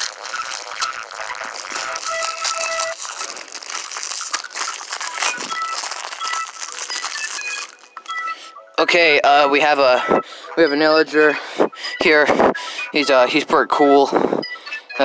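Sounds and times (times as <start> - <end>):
plastic packaging crinkling: 0.0 - 8.5
light background music: 3.9 - 15.0.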